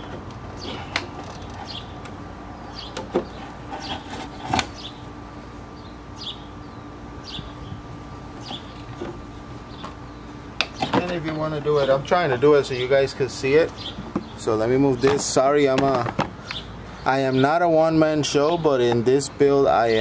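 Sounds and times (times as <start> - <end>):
bird chirping: 0.5 - 5.1, 5.7 - 15.3, 16.4 - 17.8.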